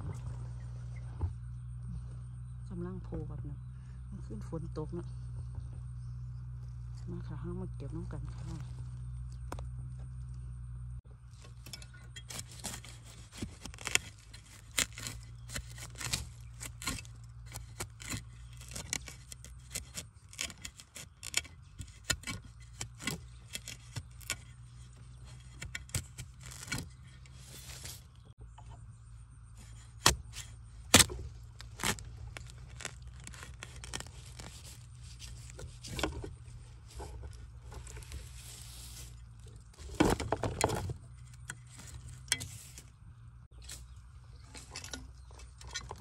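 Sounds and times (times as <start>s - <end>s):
metal blade chopping into wet soil: 29.7s - 34.1s.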